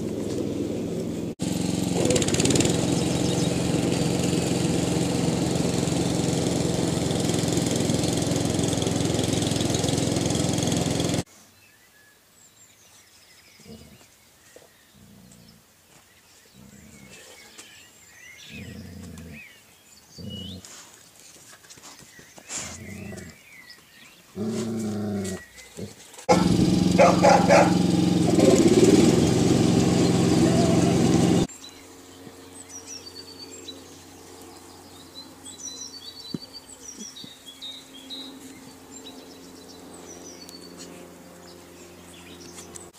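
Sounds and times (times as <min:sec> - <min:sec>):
motor drone: 0:00.0 - 0:11.3, 0:26.3 - 0:42.9
dogs growling and grunting: 0:18.5 - 0:19.5, 0:20.1 - 0:20.7, 0:22.7 - 0:23.4, 0:24.4 - 0:29.0.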